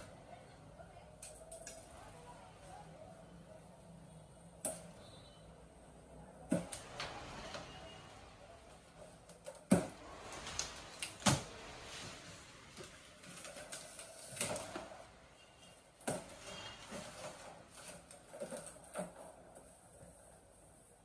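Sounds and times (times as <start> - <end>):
cardboard packing rustling: 9.8 - 15.1, 16.0 - 20.2.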